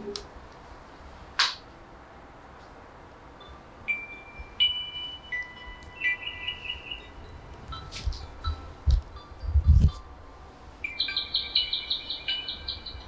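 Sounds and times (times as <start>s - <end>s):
smartphone alarm chiming melody: 3.4s - 13.0s.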